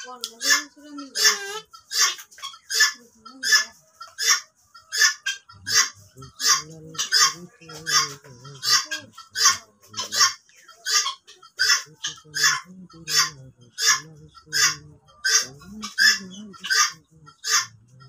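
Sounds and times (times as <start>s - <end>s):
birds giving harsh honking calls: 0.0s - 18.0s.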